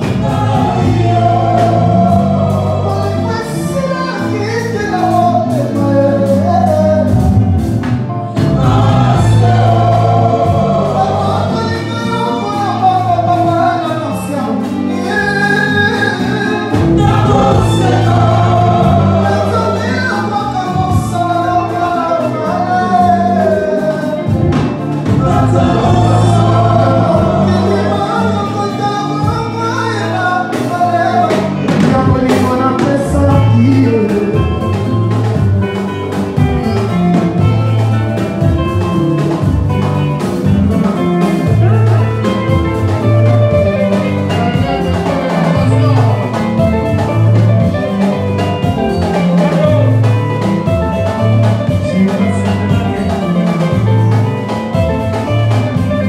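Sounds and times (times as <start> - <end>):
singers singing in harmony: 0.0 - 7.6, 8.2 - 34.7
bass guitar: 0.0 - 56.0
drum kit: 0.0 - 56.0
electric guitars: 0.0 - 56.0.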